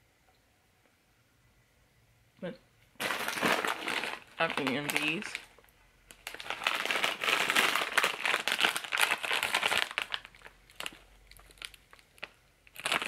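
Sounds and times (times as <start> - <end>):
snack bag crinkling: 3.0 - 13.0.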